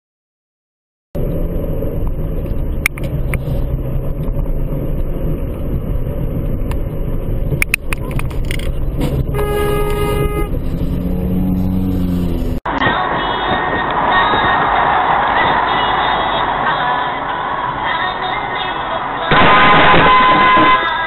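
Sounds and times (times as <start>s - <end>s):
car road and engine rumble: 1.2s - 21.0s
sharp clicks: 7.6s - 8.8s
car horn honking: 9.3s - 10.6s, 19.3s - 21.0s.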